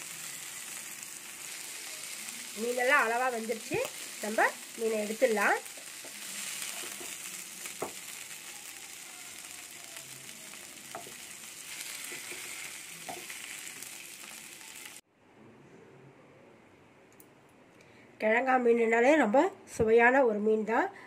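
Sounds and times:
fish sizzling in oil: 0.0s - 15.0s.

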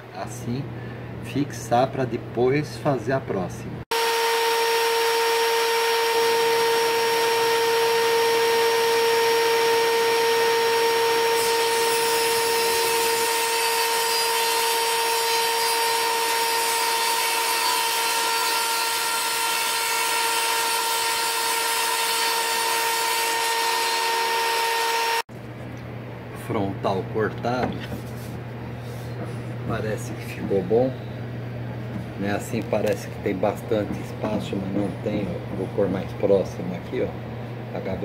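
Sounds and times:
table saw cutting board: 3.9s - 25.2s.

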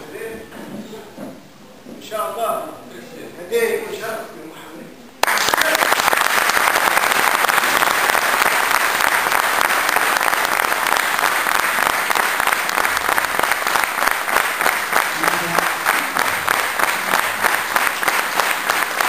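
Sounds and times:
crowd applauding: 5.2s - 19.0s.

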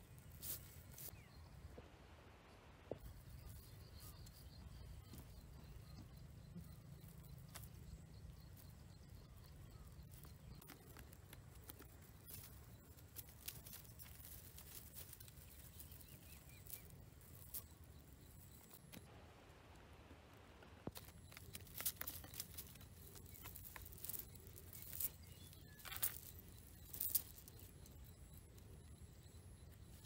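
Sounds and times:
net rustling on dry grass: 0.1s - 1.2s, 10.2s - 17.7s, 20.9s - 28.1s.

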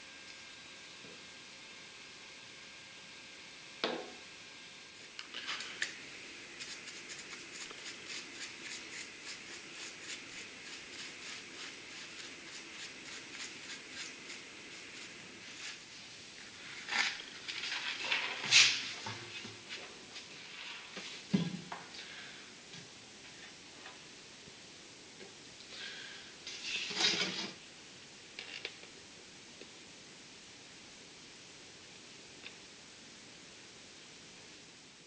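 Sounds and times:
brush stroking on wood: 6.6s - 18.9s.

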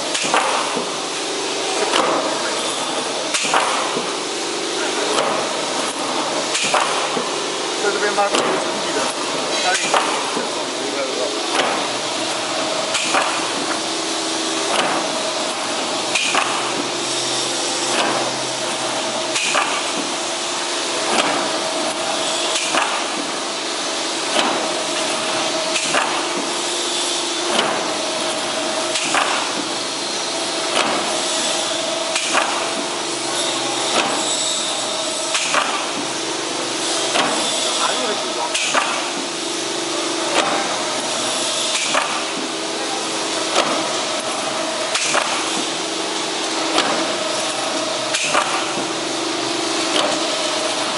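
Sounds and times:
steady machine noise: 0.0s - 50.9s.

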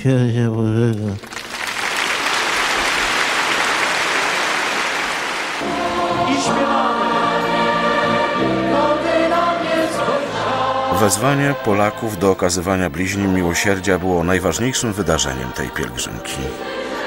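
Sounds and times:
crowd applauding: 1.2s - 5.9s
crowd singing a religious song: 5.6s - 17.0s.

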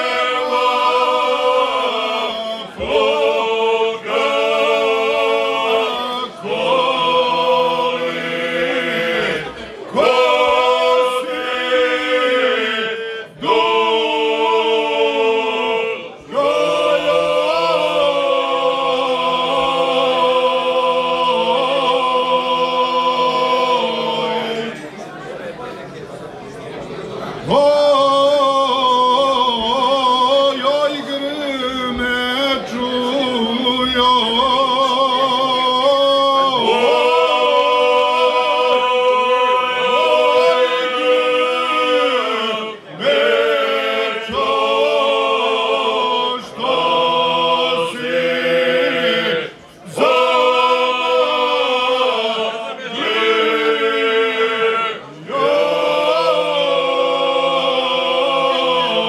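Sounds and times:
men singing in harmony: 0.0s - 24.9s, 27.5s - 59.0s.

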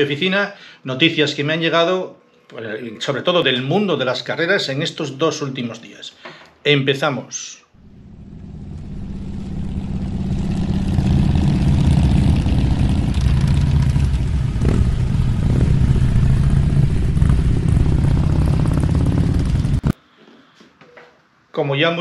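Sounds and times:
motorcycle engine running: 7.8s - 20.0s.

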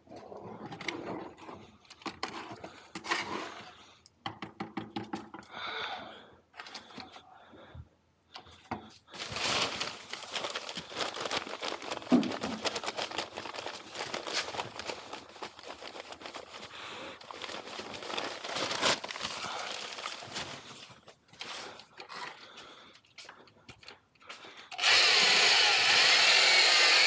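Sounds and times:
sack rustling and crinkling: 9.2s - 21.6s.

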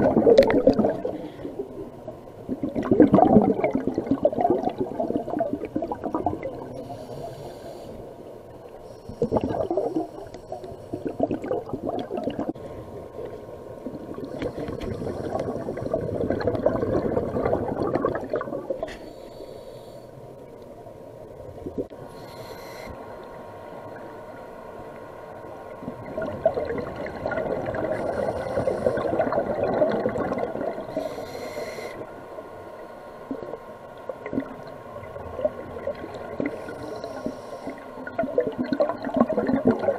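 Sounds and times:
exhaled bubbles gurgling: 0.0s - 7.8s, 9.1s - 19.0s, 25.7s - 31.4s, 33.2s - 39.9s
regulator inhale hiss: 6.7s - 11.1s, 14.2s - 16.0s, 18.8s - 20.5s, 22.0s - 23.4s, 27.9s - 29.2s, 30.8s - 33.2s, 36.4s - 38.0s.

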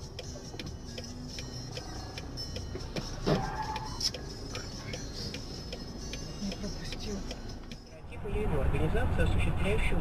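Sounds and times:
regular ticking: 0.0s - 7.9s.

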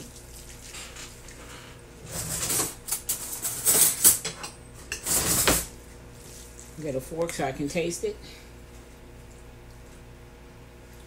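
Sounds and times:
hands mixing meat in a bowl: 0.0s - 1.7s, 5.7s - 10.1s
scraping and clattering against bowl: 0.7s - 5.8s.

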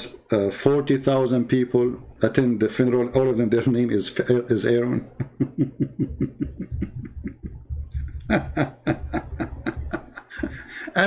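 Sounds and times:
man laughing: 5.0s - 11.0s.

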